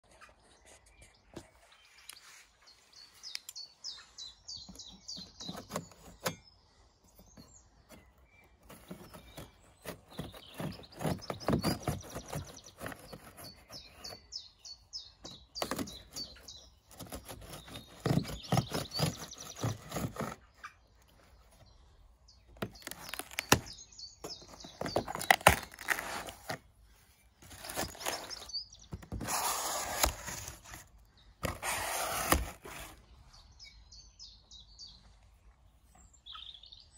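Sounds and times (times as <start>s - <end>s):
small birds chirping: 0.0s - 36.9s
knife cutting tape and cardboard: 4.7s - 6.4s, 7.2s - 14.3s, 15.2s - 20.7s, 22.5s - 26.7s, 27.4s - 33.0s
cardboard tearing: 8.6s - 14.2s, 15.6s - 20.5s, 22.6s - 26.7s, 27.4s - 33.0s.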